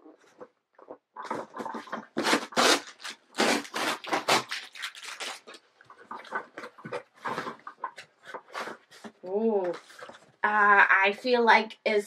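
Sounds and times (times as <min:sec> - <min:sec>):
cardboard box being torn open: 0:02.0 - 0:05.6.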